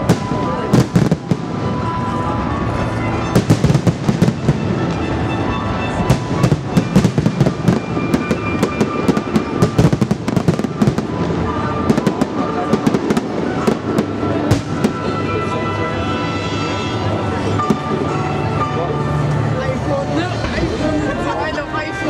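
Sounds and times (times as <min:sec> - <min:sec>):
fireworks bursting with bangs: 0:00.0 - 0:18.8
music playing: 0:00.0 - 0:22.0.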